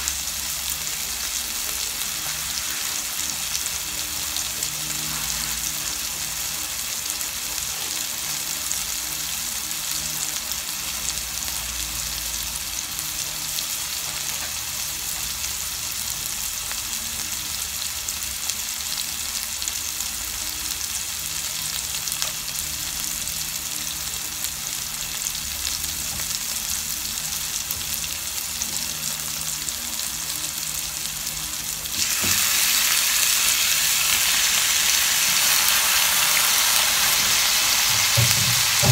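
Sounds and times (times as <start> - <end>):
onion and tomato sizzling in oil: 0.0 - 38.9
chicken pieces hitting hot oil: 31.9 - 38.9.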